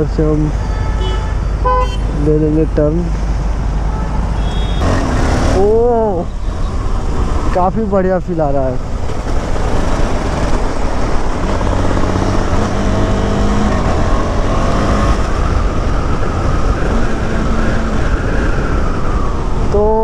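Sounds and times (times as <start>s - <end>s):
wind rushing on microphone: 8.8s - 20.0s.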